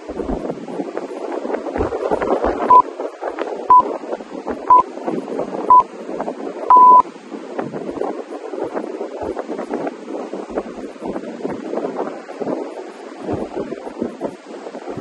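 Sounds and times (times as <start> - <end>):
longer timer beep: 6.7 - 7.0
short high beeps: 6.7 - 7.0.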